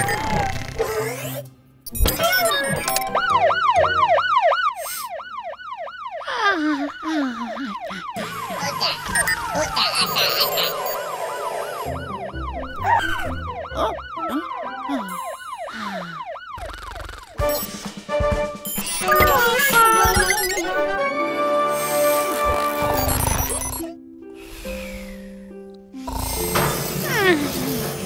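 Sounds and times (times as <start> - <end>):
cartoon siren wailing: 0.0 - 0.6, 2.4 - 17.4, 18.9 - 20.9.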